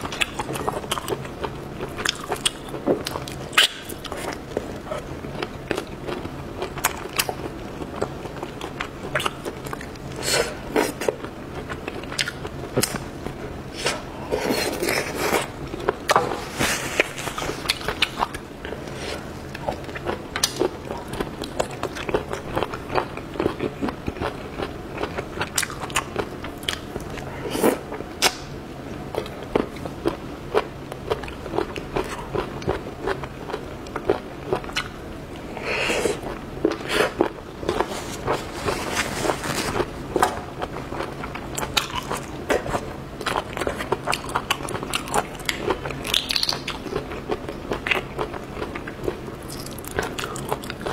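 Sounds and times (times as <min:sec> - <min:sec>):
person chewing with wet mouth clicks: 0:40.6 - 0:50.9.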